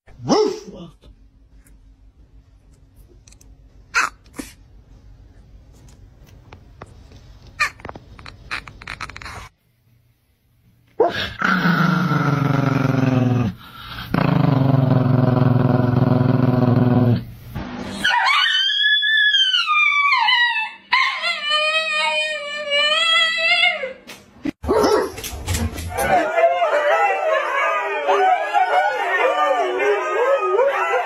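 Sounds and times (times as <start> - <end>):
dog growling: 11.0 - 17.2
dog yipping: 18.0 - 23.4.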